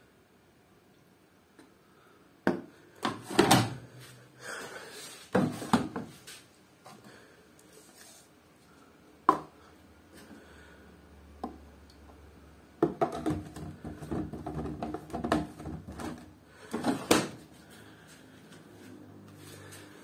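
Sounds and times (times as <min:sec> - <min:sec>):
plastic knocks and rattles: 0:12.8 - 0:17.3.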